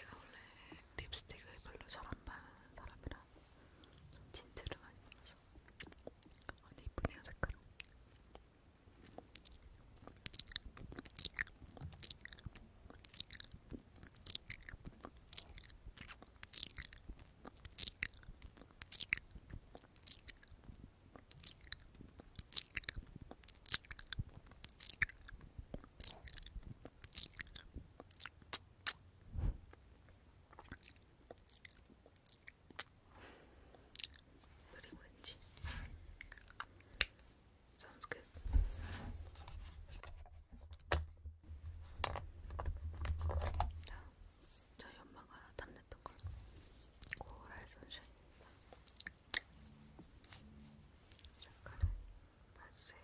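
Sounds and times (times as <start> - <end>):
wet lip smacks and tongue clicks: 9.2 - 29.0, 29.7 - 33.0, 33.9 - 34.3, 36.2 - 37.3, 47.0 - 47.6, 48.7 - 49.5.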